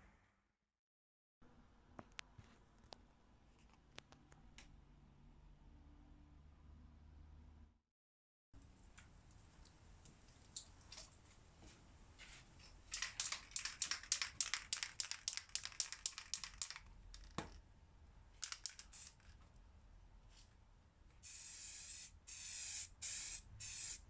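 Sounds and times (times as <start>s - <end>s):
spray can ball rattling: 12.9s - 17.6s, 18.4s - 19.4s, 21.2s - 24.0s.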